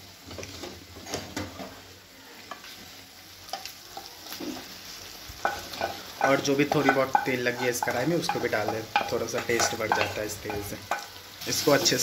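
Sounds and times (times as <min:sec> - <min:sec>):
food sizzling in a pan: 0:00.0 - 0:12.0
spoon scraping a pan: 0:05.4 - 0:12.0.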